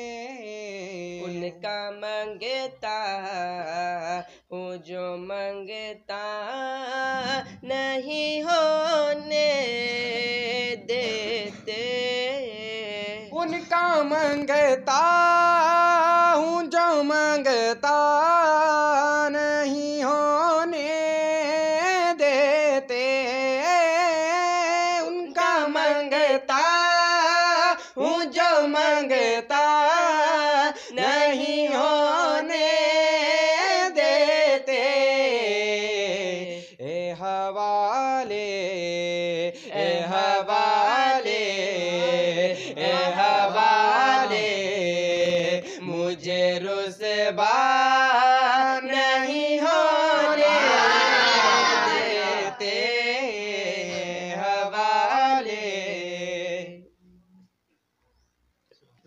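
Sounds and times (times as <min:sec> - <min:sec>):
boy singing unaccompanied: 0:00.0 - 0:35.3, 0:39.7 - 0:56.2.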